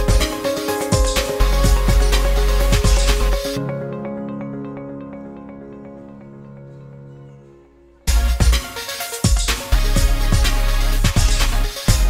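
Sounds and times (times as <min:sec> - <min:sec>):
beat-driven track with heavy bass: 0:00.0 - 0:03.7, 0:08.1 - 0:12.0
soft melodic music: 0:00.0 - 0:10.9.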